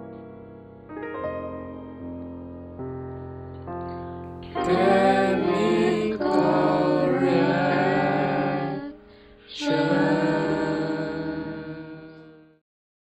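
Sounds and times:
jingle music with singing: 0:04.5 - 0:12.2.

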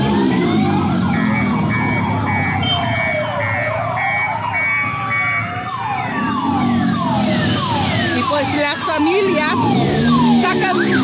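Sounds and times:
low traffic rumble: 0:00.0 - 0:11.0
sirens wailing: 0:00.0 - 0:11.0
repeated beeping tone: 0:01.0 - 0:05.5, 0:08.2 - 0:11.0.

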